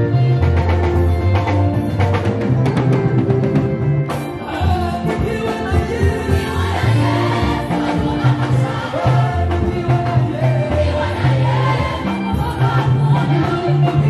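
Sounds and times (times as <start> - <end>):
drum strokes: 0.5 - 14.0
choir singing gospel: 4.4 - 14.0.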